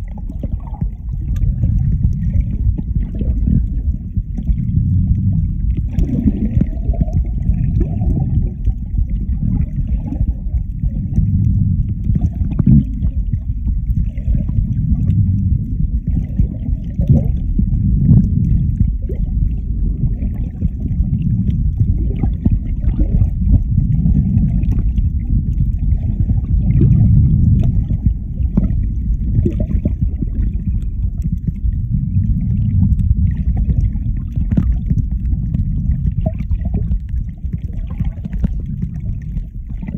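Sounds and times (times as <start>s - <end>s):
underwater churning rumble: 0.0s - 39.9s.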